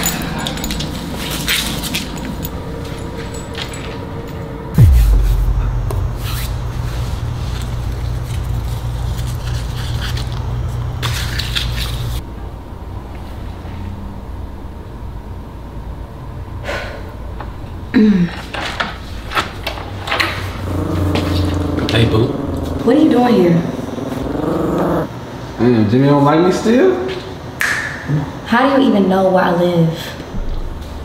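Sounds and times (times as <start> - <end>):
low steady rumble: 3.3 - 11.1
deep boom dropping in pitch: 4.8 - 8.0.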